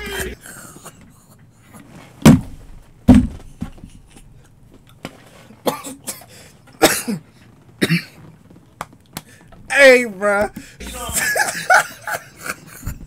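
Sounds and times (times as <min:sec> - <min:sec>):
man coughing with laughter: 0:06.8 - 0:07.2, 0:07.8 - 0:08.2, 0:10.8 - 0:13.0.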